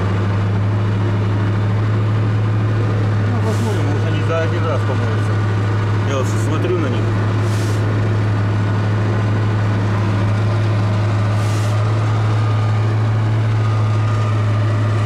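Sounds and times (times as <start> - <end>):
truck engine running under load: 0.0 - 15.0
burst of hiss: 7.4 - 7.8.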